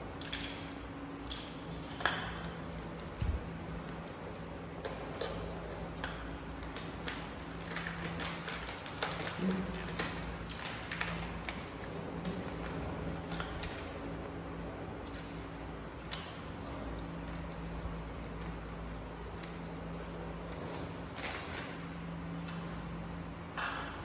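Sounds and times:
steady low hum: 0.0s - 24.0s
plastic snack bag crinkling: 6.5s - 13.9s, 20.5s - 21.8s.

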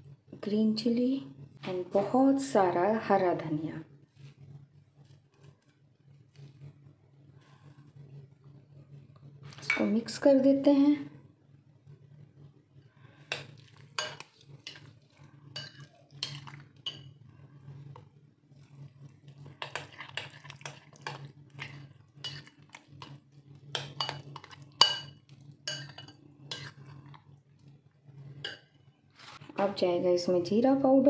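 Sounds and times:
metal spoon clinking on glass bowl: 15.6s - 17.1s, 23.8s - 26.2s.

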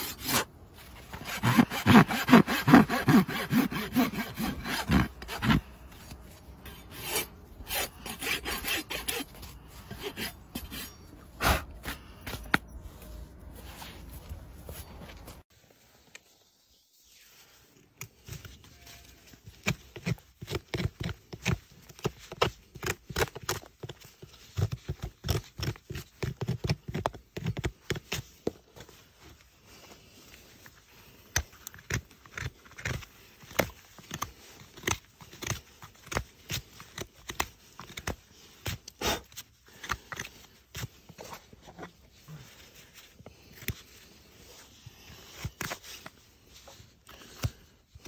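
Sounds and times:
hoof knife scraping hoof: 0.0s - 15.4s.

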